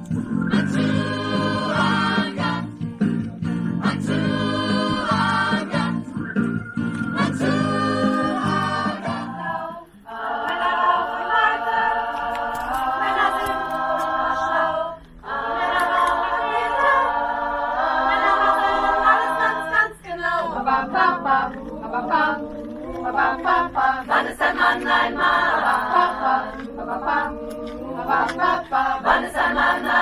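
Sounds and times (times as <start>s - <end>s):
women's choir singing: 0.4s - 2.8s, 3.8s - 6.2s, 6.9s - 30.0s.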